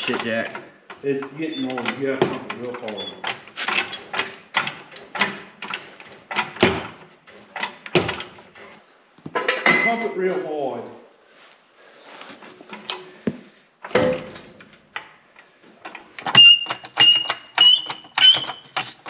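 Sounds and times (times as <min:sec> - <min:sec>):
hydraulic jack pumping clicks: 0:15.8 - 0:19.0.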